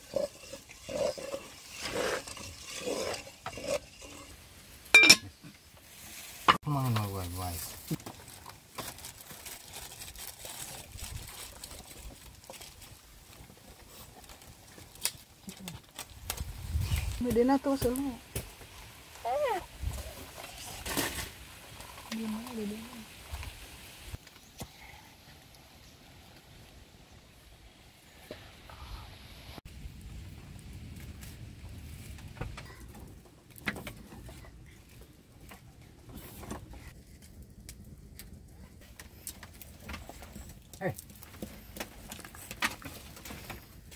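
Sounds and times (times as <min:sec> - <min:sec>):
dry sticks rustling and knocking: 0:00.0 - 0:19.2, 0:30.9 - 0:43.9
wood fire crackling: 0:00.0 - 0:43.9
sharp snaps of burning wood: 0:14.8 - 0:18.7.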